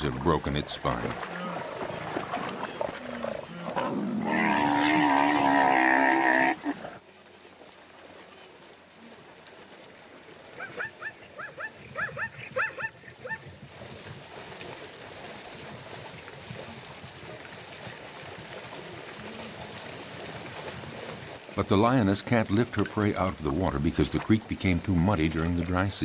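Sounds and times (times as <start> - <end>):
zebra braying call: 3.3 - 7.0.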